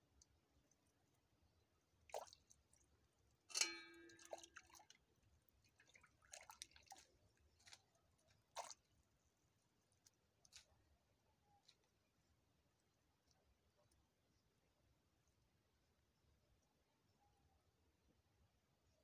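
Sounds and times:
water dripping and splashing: 2.0 - 9.1.

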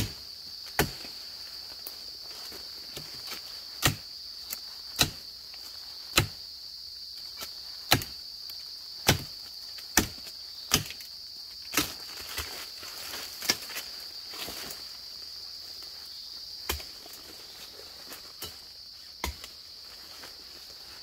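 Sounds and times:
machete chopping branch: 0.0 - 1.1, 2.9 - 5.3, 6.1 - 6.4, 7.4 - 8.2, 9.0 - 11.1, 11.7 - 12.6, 13.4 - 13.8, 16.6 - 17.0, 19.2 - 19.5
forest insects droning: 0.0 - 21.0.

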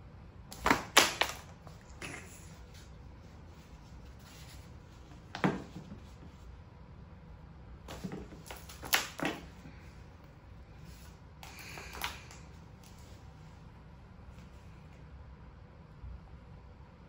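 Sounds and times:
play mat arch knocking: 0.6 - 1.5.

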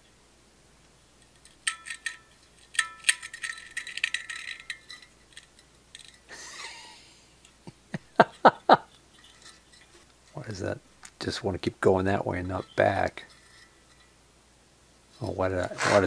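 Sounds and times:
light metallic ringing: 1.2 - 6.3, 11.2 - 14.2
small metallic clicks and clinks: 1.2 - 6.3, 8.3 - 10.4, 12.4 - 14.2
metal scrape: 8.9 - 10.6, 12.1 - 14.2, 15.1 - 16.0.

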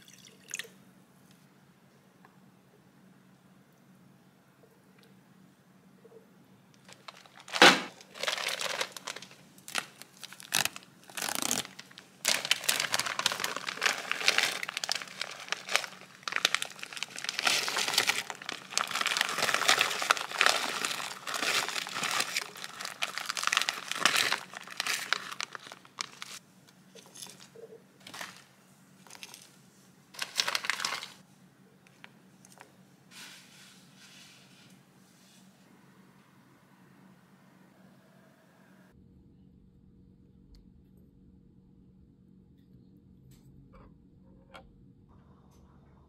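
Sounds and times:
plastic bag crinkling: 6.8 - 29.5, 30.2 - 31.2
loud sharp crackle: 6.9 - 26.4.

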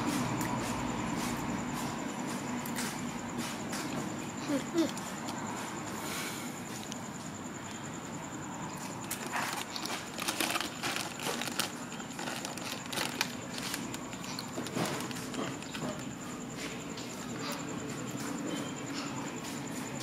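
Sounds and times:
crunchy snacks being eaten: 2.6 - 6.0, 8.6 - 18.4
plastic snack bag crinkling: 8.8 - 16.1.

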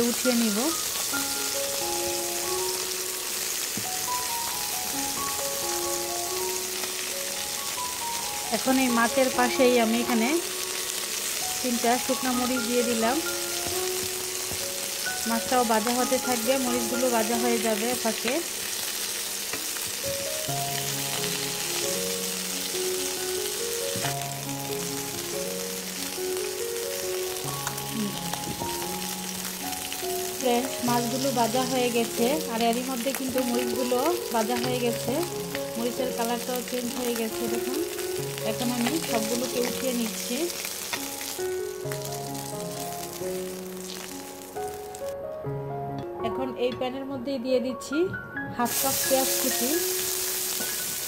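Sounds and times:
fish sizzling in oil: 0.0 - 45.2, 48.6 - 51.0
background music: 0.0 - 51.0.

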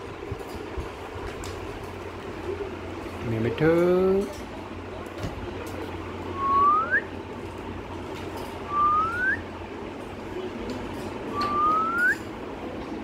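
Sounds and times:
parakeet rising whistles: 8.7 - 9.4, 11.4 - 12.2.

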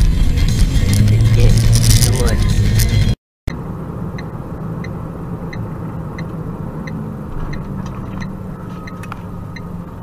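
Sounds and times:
car engine and road rumble: 0.0 - 10.0
turn signal ticking: 2.8 - 10.0.

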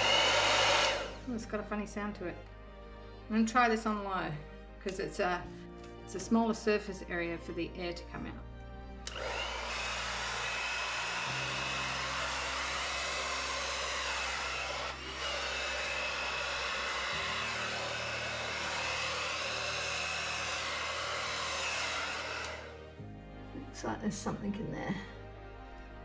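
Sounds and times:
hair dryer whirring: 0.0 - 1.4, 9.0 - 23.0.

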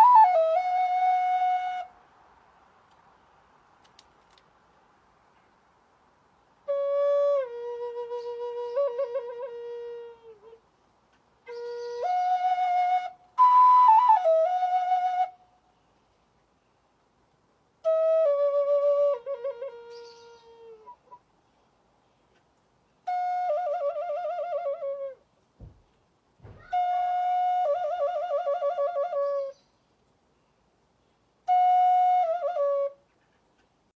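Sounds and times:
wooden flute melody: 0.0 - 2.0, 6.6 - 10.7, 11.4 - 15.8, 17.8 - 21.3, 23.0 - 25.8, 26.4 - 29.8, 31.4 - 33.4.

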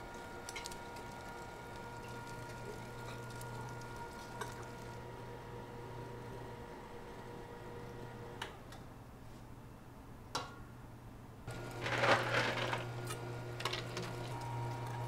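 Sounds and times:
electric motor hum: 0.0 - 8.4, 11.5 - 15.0.

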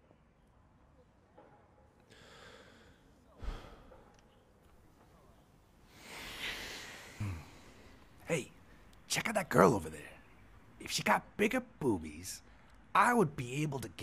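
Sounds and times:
man breathing heavily: 2.1 - 4.1, 5.9 - 8.1
long breathy sigh: 5.9 - 7.9.

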